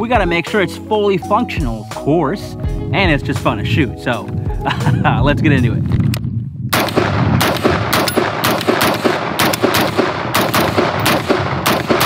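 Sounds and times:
rifle firing rapid shots: 6.7s - 12.0s.

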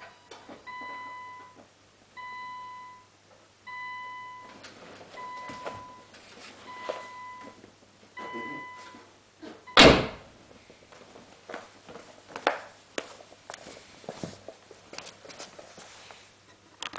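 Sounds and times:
short electronic beeps: 8.2s - 8.9s
car door shutting: 9.8s - 10.2s.

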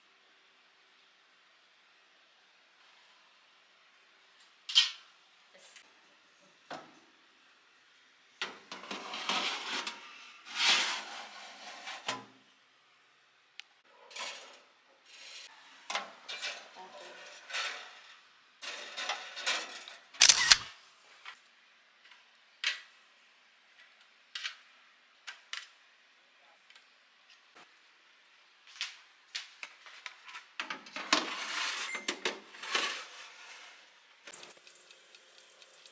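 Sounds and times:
metal tray scraping and rattling: 8.4s - 12.3s, 14.0s - 20.1s, 31.0s - 33.9s.

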